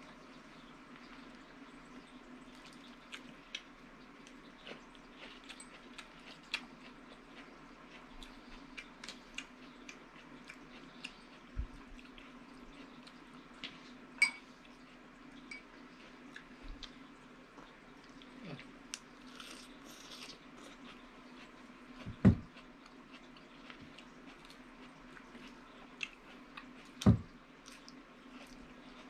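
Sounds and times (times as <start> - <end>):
chewing and lip smacks: 2.5 - 13.9, 16.0 - 27.0.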